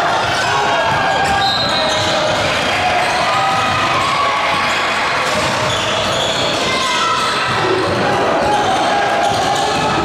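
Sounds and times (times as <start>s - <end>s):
shoe squeaks: 1.2s - 2.3s, 5.6s - 6.6s.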